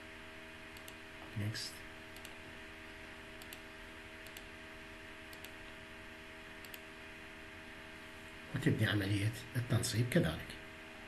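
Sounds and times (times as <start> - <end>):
low electrical hum: 0.0 - 11.0
faint computer mouse clicks: 0.8 - 1.0, 3.4 - 3.6, 4.2 - 4.5, 5.3 - 5.6, 6.6 - 6.8.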